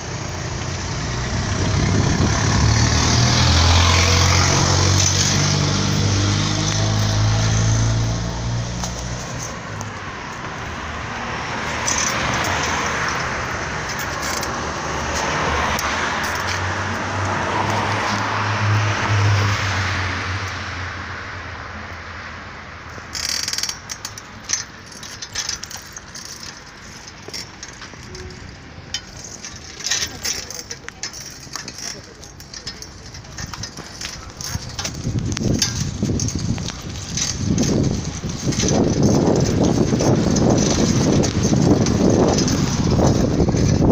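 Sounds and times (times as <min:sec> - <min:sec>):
sharp clicks and rattles: 0:00.0 - 0:18.5, 0:22.9 - 0:43.9
vehicle passing: 0:00.0 - 0:22.1, 0:22.8 - 0:43.9
street traffic: 0:00.0 - 0:43.9.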